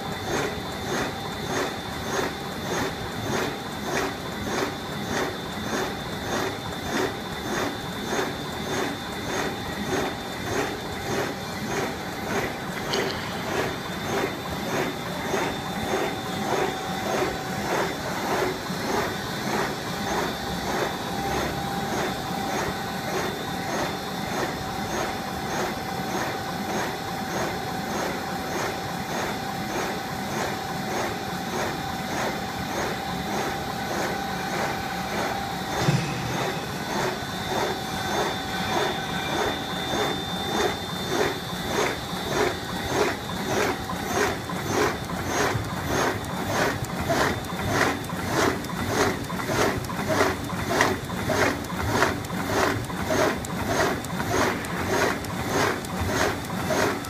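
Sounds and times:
machine clattering rhythmically: 0.0s - 57.0s
motor whine: 30.9s - 57.0s
sharp knock: 35.8s - 37.7s.

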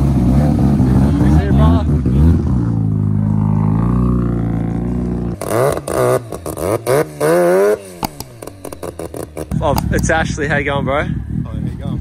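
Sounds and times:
voices: 0.6s - 5.2s, 9.5s - 12.0s.

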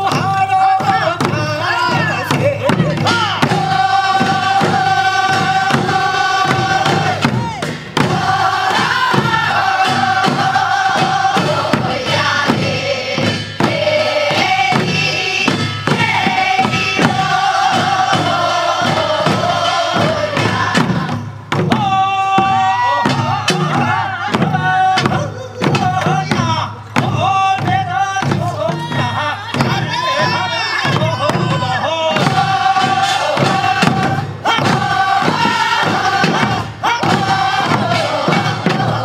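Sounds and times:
barrel drum beats: 0.0s - 39.0s
group of voices singing: 0.0s - 39.0s.

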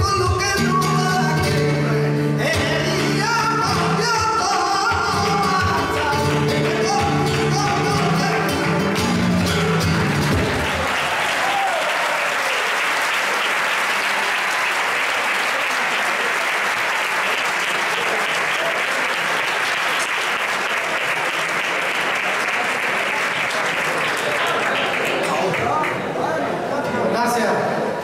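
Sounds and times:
flamenco song with guitar: 0.0s - 10.9s
audience applause: 3.2s - 26.2s.

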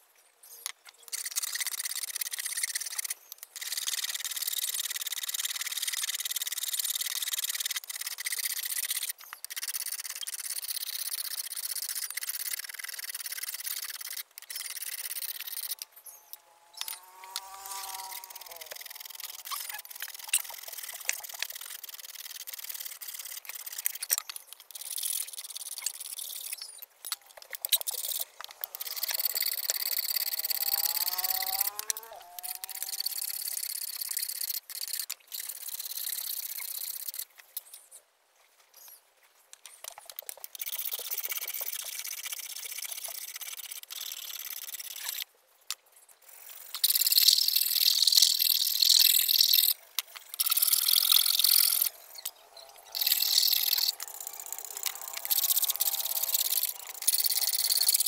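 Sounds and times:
short rising call: 16.2s - 20.0s, 28.8s - 33.2s.

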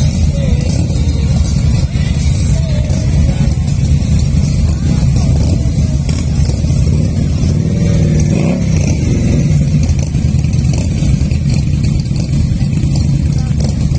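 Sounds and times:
motorcycle engine revving: 0.0s - 13.9s
motorcycle engines rumbling: 0.0s - 13.9s.

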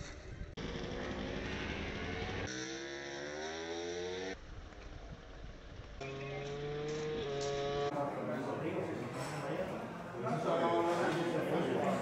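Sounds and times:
engine running: 0.0s - 7.9s.

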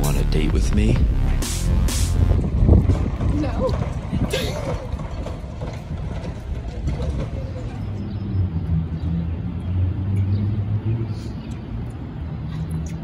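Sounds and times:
steady low hum: 0.0s - 2.8s
wind buffeting microphone: 2.3s - 10.4s.

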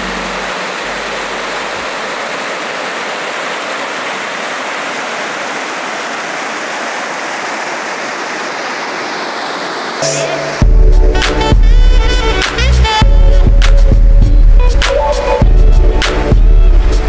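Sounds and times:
river water rushing over rocks: 0.0s - 10.7s.

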